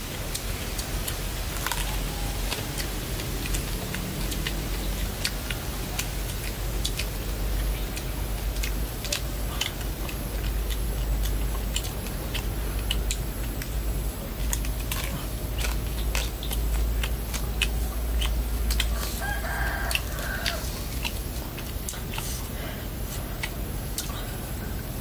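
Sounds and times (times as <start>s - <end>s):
rooster crowing: 18.8s - 21.0s.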